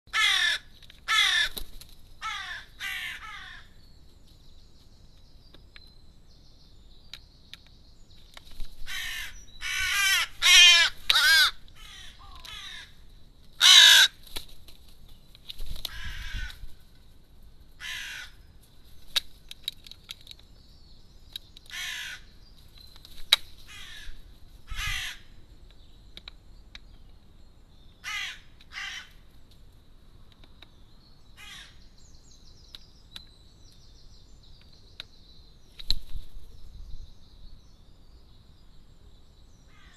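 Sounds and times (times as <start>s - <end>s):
crow cawing: 0.1s - 1.6s, 2.2s - 3.8s, 8.9s - 13.0s, 13.6s - 14.2s, 15.9s - 16.6s, 17.8s - 18.4s, 21.7s - 22.3s, 23.7s - 25.3s, 28.0s - 29.2s, 31.4s - 31.8s.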